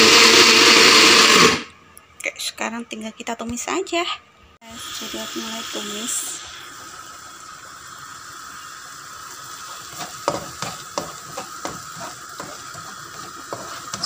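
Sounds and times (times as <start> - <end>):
paste sizzling in a frying pan: 4.8 - 14.0
spatula scraping and tapping a pan: 9.7 - 14.0.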